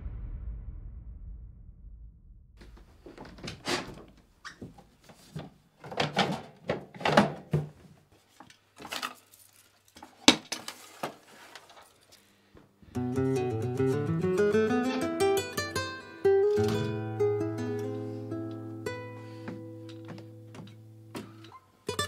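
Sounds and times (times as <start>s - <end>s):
plucked guitar music: 12.9s - 22.0s.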